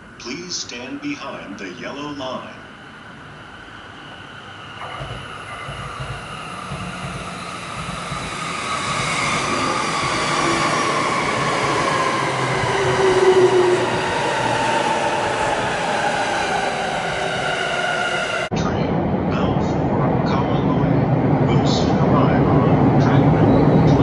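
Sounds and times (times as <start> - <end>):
electric train motors whining: 3.0 - 18.5
wheels rumbling on rail: 3.4 - 24.0.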